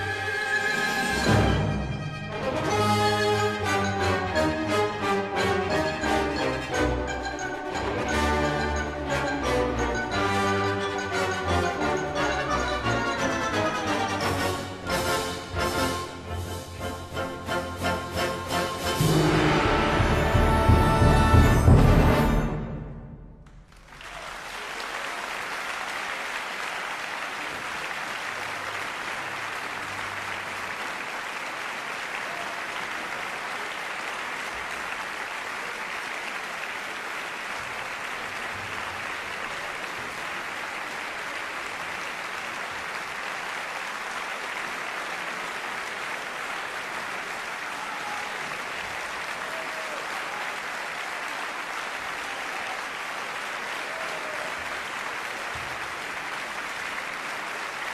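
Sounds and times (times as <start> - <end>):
audience applauding: 23.4 - 57.9.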